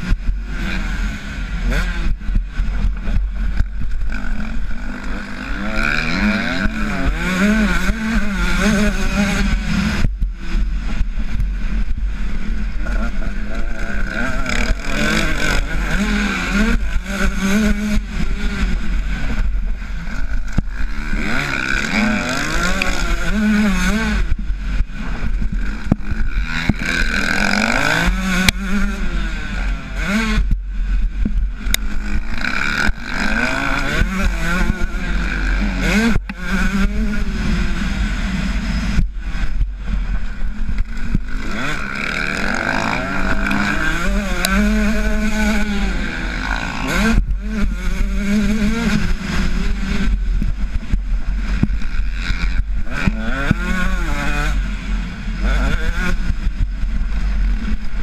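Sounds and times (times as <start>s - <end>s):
motorbike engine revving: 0.0s - 58.0s
wind rumble on microphone: 0.0s - 58.0s.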